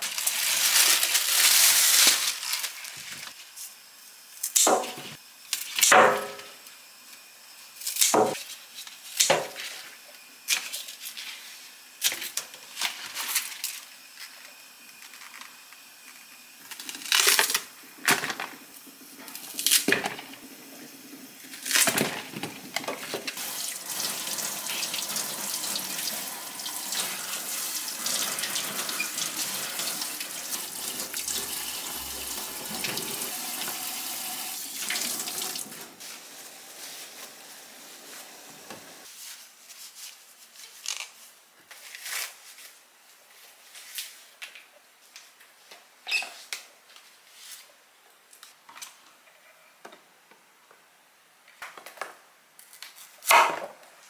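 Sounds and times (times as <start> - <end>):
kitchen tap running into sink: 23.4 - 36.7.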